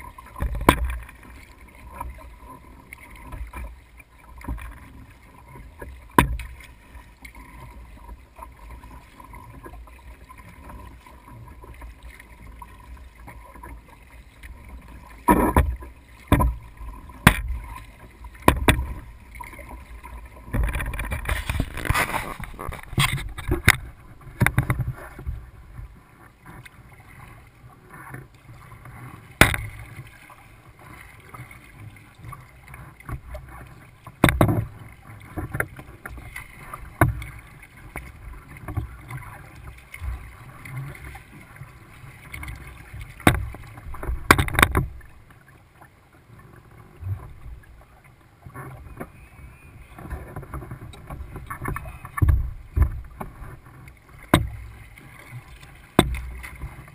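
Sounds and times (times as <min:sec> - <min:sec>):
water splashing: 0:00.0 - 0:56.9
knocks on a kayak: 0:17.2 - 0:17.6, 0:18.4 - 0:19.0, 0:29.4 - 0:29.8, 0:34.2 - 0:34.7, 0:43.2 - 0:45.0, 0:54.3 - 0:54.6, 0:55.9 - 0:56.3.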